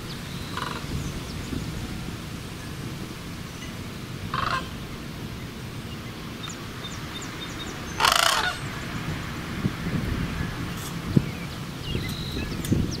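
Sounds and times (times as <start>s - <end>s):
crane calling: 0.0s - 9.1s.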